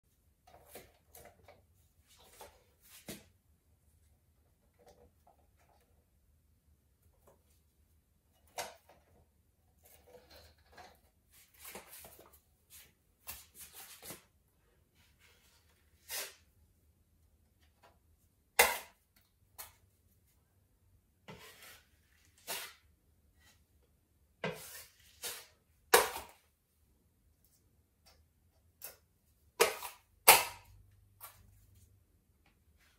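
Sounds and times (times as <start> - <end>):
putty knife scraping wall: 21.2 - 23.6, 24.4 - 26.4.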